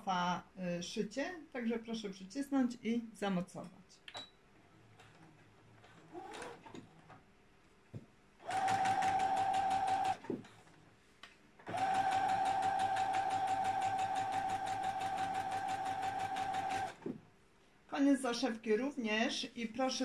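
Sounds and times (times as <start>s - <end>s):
electric sewing machine stitching: 6.0s - 6.8s, 8.4s - 10.4s, 11.7s - 17.1s.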